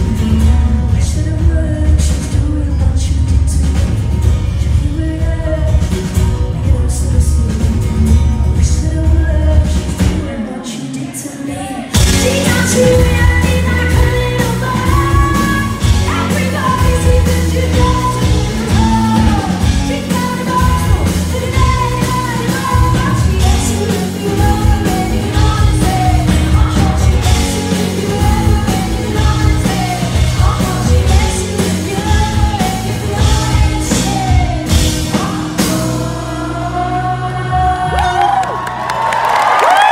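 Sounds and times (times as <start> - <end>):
woman singing: 0.0 - 38.6.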